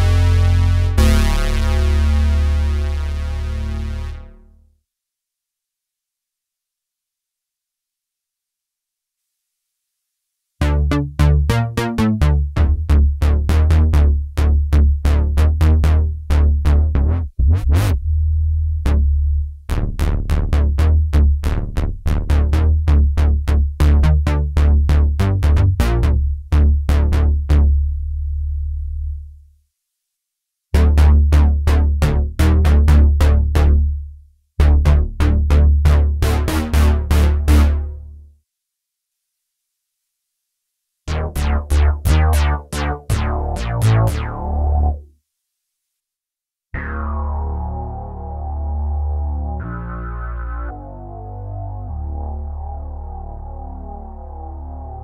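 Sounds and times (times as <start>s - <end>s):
synthesizer bass notes: 0.0s - 4.7s, 10.6s - 29.2s, 30.8s - 38.2s, 41.1s - 45.1s, 46.8s - 55.0s.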